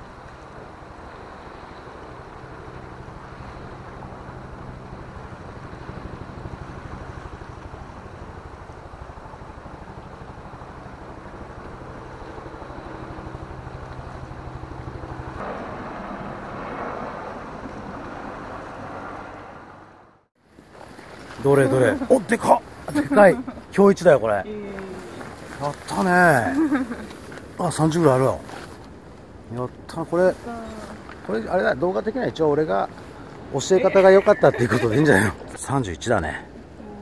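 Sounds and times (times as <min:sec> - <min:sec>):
boat motor drone: 0:00.0 - 0:20.3
wind: 0:00.0 - 0:37.0.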